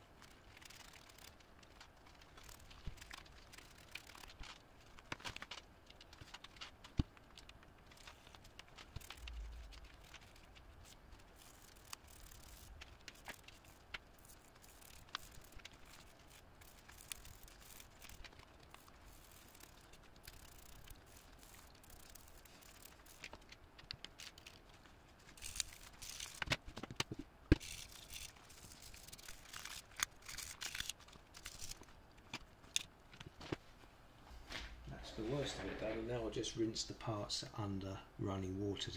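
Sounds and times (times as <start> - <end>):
toothbrush scrubbing plastic parts: 0.2 - 24.6, 27.5 - 31.8.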